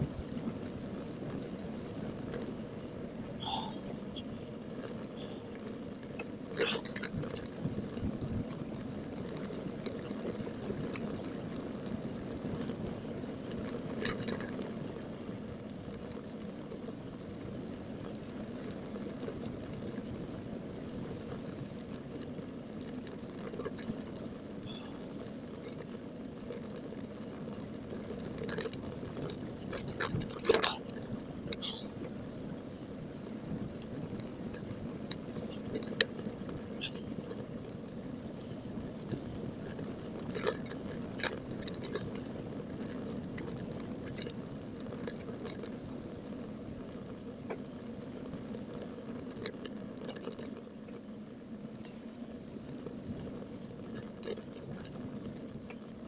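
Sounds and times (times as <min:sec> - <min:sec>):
wind buffeting microphone: 0:00.0 - 0:13.9
bicycle tyres on tarmac: 0:00.0 - 0:56.0.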